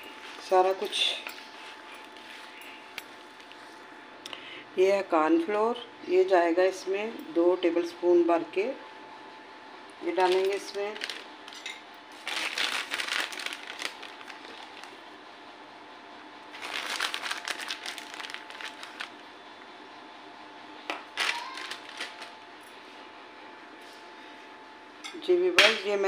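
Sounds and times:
faint steady hum: 0.0 - 26.0
plastic bag crinkling: 10.2 - 15.1, 16.5 - 19.2, 21.1 - 22.4.

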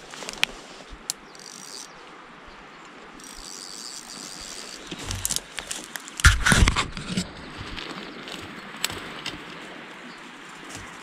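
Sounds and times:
high insect-like buzz: 1.2 - 2.0, 3.2 - 5.8.

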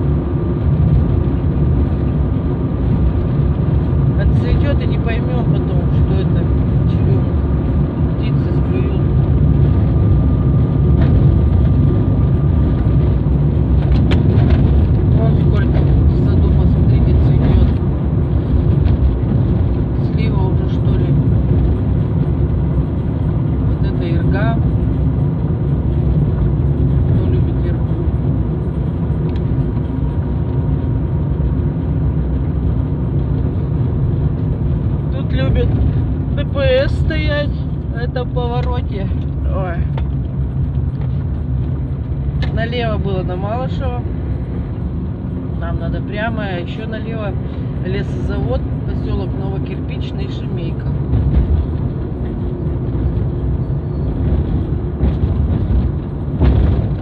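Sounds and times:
car engine and tyre rumble: 0.0 - 57.0.

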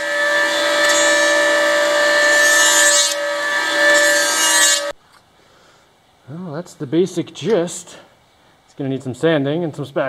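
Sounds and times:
power tool cutting wood: 0.0 - 5.0.

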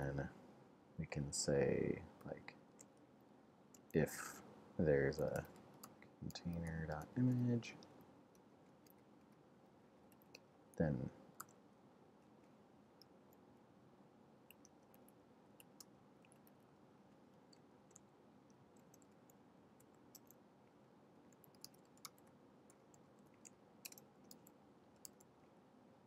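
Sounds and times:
computer keyboard keystrokes: 21.3 - 22.3, 23.3 - 25.2.

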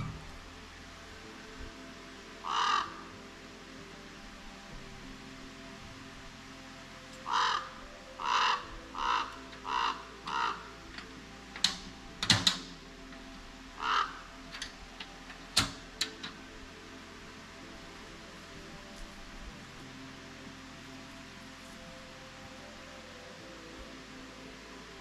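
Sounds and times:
crow cawing: 2.4 - 3.1, 7.2 - 11.1, 13.8 - 14.7.

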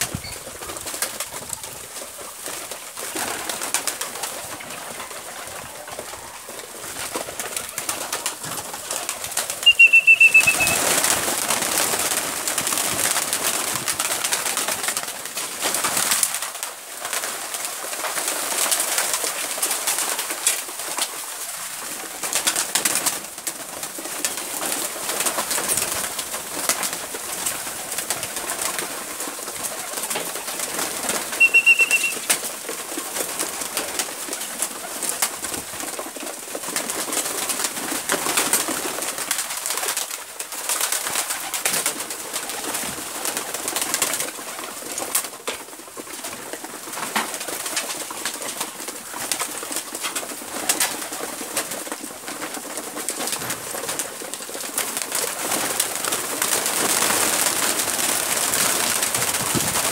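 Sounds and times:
wings flapping: 0.0 - 59.9
pigeons cooing: 9.6 - 11.3.

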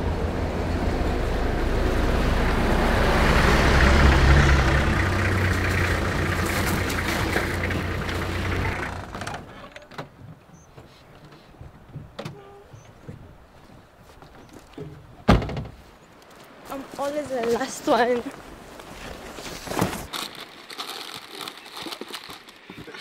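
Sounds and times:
vehicle engine running: 0.0 - 9.5.

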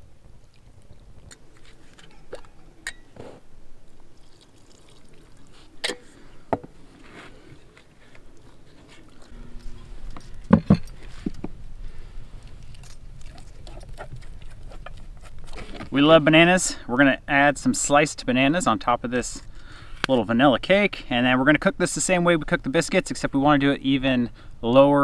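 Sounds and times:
liquid poured into metal bowl: 4.1 - 5.6.

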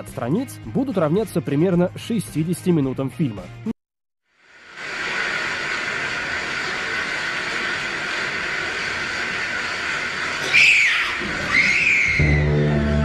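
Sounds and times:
steady hiss: 4.3 - 12.2
short squealing glides: 10.4 - 12.6.

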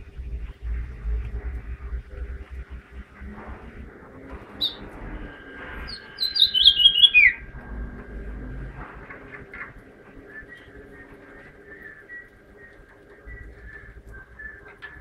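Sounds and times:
finch singing: 4.5 - 5.2, 5.8 - 7.5.

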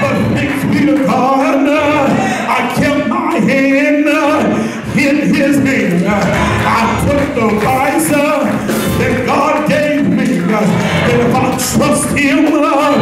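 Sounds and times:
man singing gospel unaccompanied: 0.0 - 13.0.

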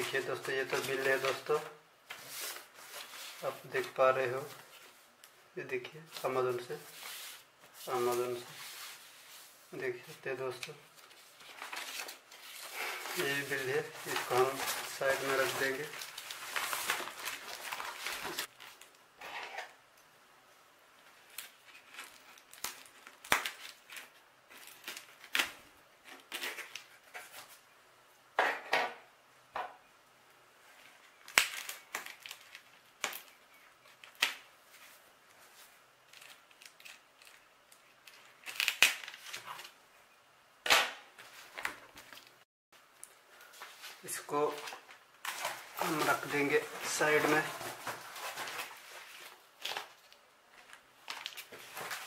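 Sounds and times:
tape and cardboard crackling: 10.5 - 19.8, 21.1 - 27.6, 30.9 - 39.8, 43.0 - 52.0.

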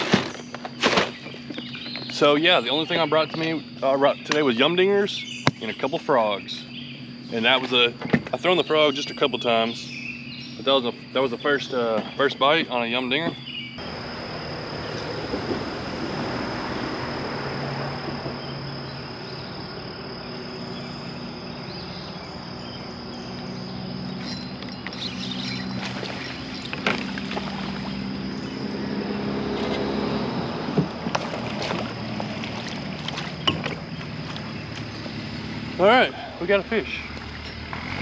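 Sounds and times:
steady low hum: 1.2 - 37.6
high steady tone: 24.0 - 27.4
small splashes: 25.0 - 28.1, 31.0 - 34.9.

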